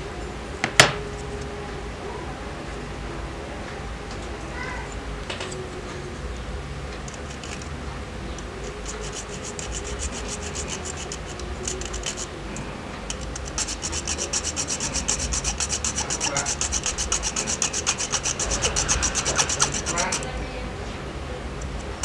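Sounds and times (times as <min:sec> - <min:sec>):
saw blade rasping: 0:08.4 - 0:20.3.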